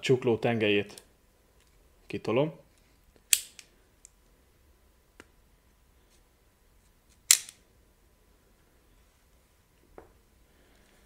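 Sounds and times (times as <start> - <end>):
pistol metal clicks: 3.2 - 4.2, 7.2 - 7.6.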